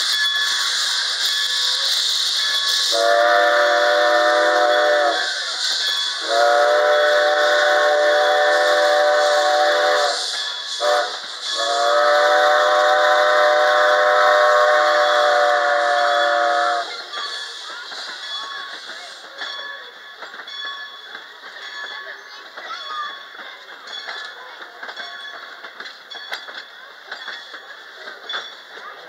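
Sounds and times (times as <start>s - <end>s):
steam locomotive chime whistle: 0.0s - 22.2s
passenger coaches rolling past: 0.0s - 29.0s.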